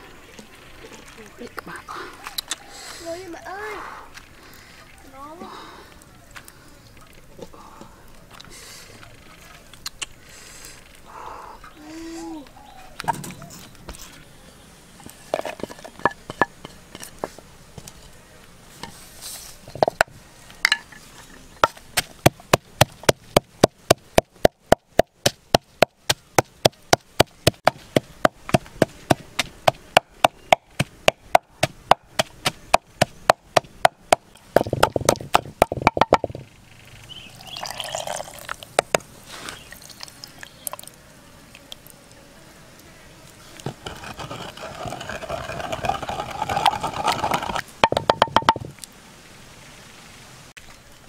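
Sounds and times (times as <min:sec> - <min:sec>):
pestle grinding in mortar: 0:15.3 - 0:17.1, 0:21.6 - 0:36.4, 0:43.6 - 0:48.7
pestle pounding in mortar: 0:21.6 - 0:36.4, 0:44.0 - 0:48.7.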